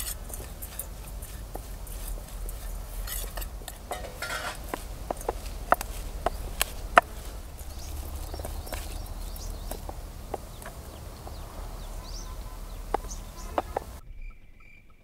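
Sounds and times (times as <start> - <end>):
metallic clinks against a bowl: 0.0 - 6.0
scraping and rustling in a bowl: 0.0 - 14.0.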